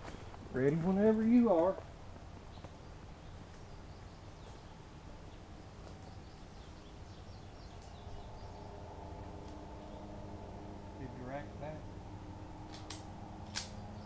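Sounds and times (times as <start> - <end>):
faint outdoor background noise: 0.0 - 14.0
soft bird chirps: 2.4 - 10.8.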